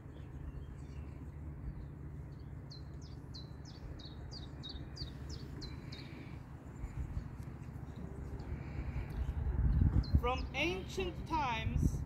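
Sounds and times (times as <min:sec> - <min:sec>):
low steady rumble: 0:00.0 - 0:12.0
songbird singing: 0:00.0 - 0:12.0.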